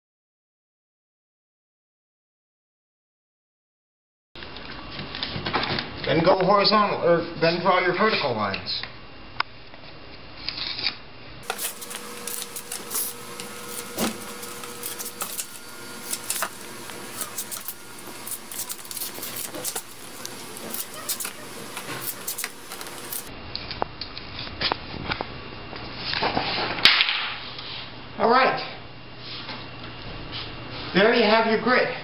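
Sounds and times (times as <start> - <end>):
marker scratching on concrete: 17.1 - 23.3.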